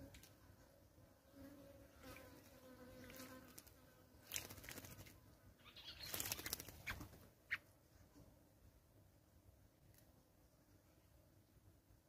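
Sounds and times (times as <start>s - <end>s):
bird splashing in water: 2.0s - 5.2s, 6.0s - 7.2s.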